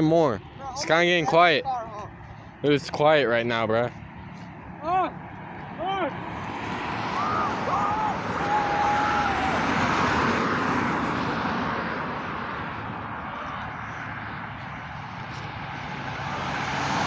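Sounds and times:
highway traffic: 0.0s - 17.0s
vehicle passing: 0.0s - 17.0s
car passing close: 3.5s - 17.0s.

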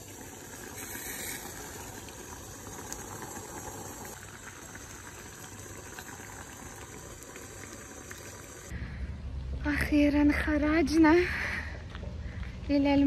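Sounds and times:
water boiling in a saucepan: 0.0s - 8.7s.

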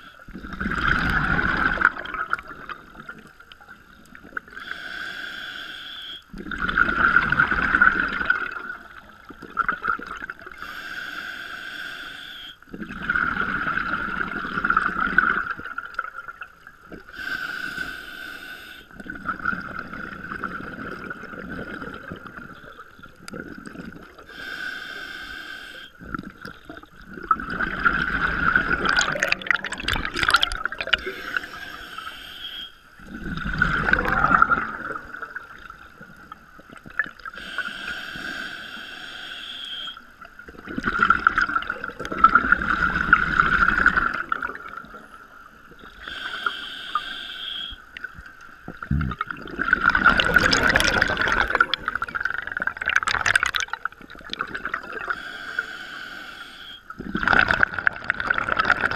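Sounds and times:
bubbling exhale underwater: 0.0s - 3.4s, 6.3s - 10.6s, 12.7s - 17.1s, 19.0s - 24.3s, 26.0s - 31.8s, 33.0s - 37.6s, 40.4s - 45.0s, 48.1s - 55.2s, 57.0s - 58.9s
diver inhaling through regulator: 4.6s - 6.2s, 10.6s - 12.6s, 17.1s - 18.9s, 24.2s - 26.0s, 28.4s - 35.4s, 37.3s - 40.1s, 45.8s - 47.9s, 54.9s - 57.6s.

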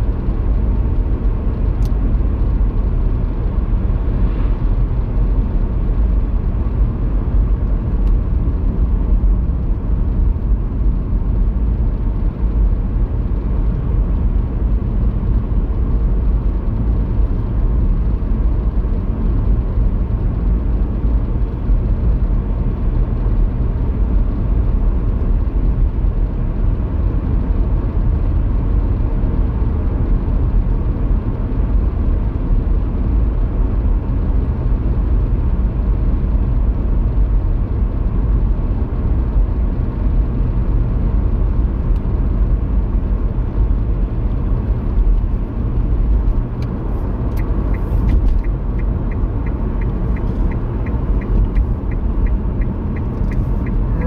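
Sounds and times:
road and tyre rumble: 0.0s - 54.0s
light regular ticking: 47.3s - 54.0s.

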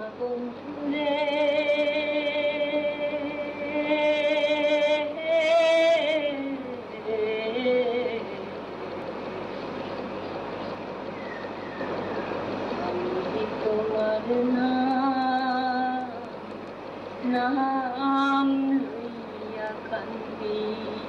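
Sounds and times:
steady rushing noise: 7.8s - 21.0s.

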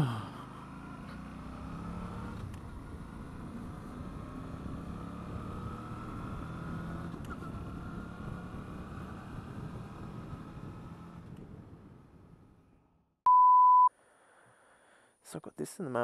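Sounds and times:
motorcycle engine running: 0.1s - 12.4s
wind and road rush: 0.4s - 12.9s.

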